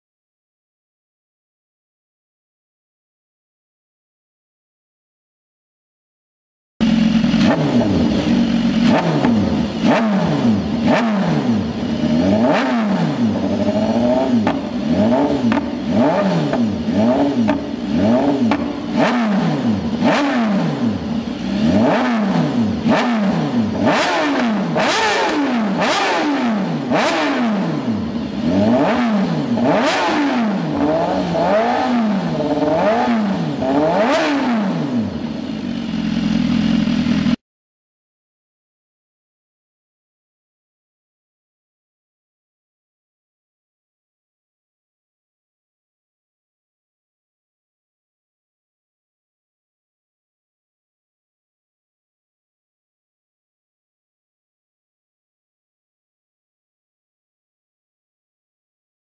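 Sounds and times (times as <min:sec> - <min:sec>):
motorcycle engine revving: 0:06.8 - 0:37.4
exhaust cracks: 0:18.4 - 0:19.2.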